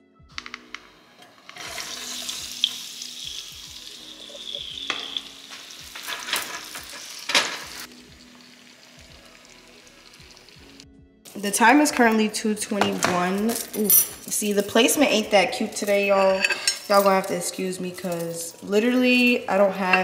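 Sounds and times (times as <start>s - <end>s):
potatoes sizzling in oil: 1.3s - 11.9s.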